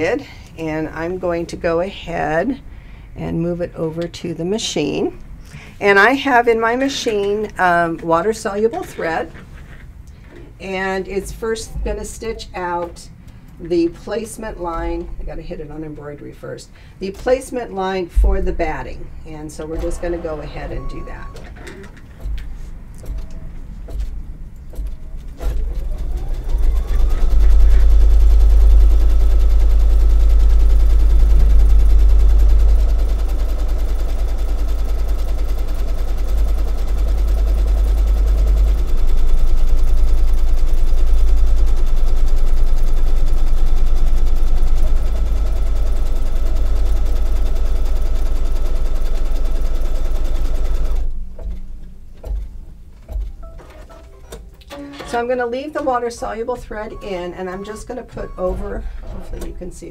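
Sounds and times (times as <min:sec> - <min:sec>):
embroidery machine stitching: 0:24.7 - 0:51.6, 0:56.9 - 0:59.9.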